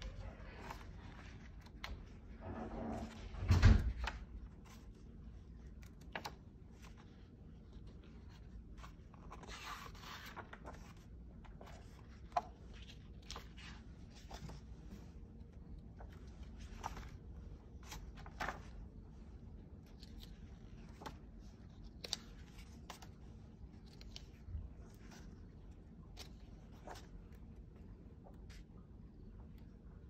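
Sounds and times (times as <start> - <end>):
book pages rustling: 0.1 - 3.3, 4.0 - 29.8
page flaps: 17.8 - 18.8.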